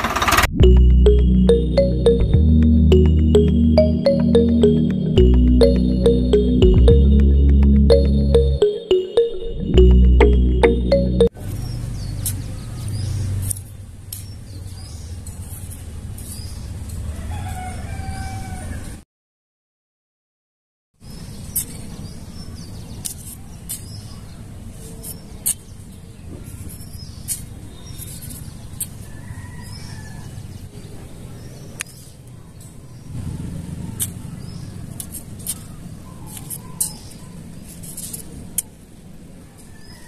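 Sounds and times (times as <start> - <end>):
sharp clicks and ticks: 0.0 - 1.2.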